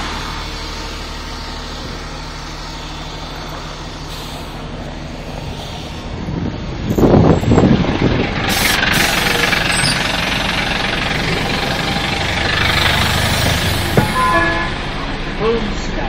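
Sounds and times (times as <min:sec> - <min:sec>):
diesel bus engine idling: 0:00.0 - 0:16.0
air brake hiss: 0:04.1 - 0:04.6.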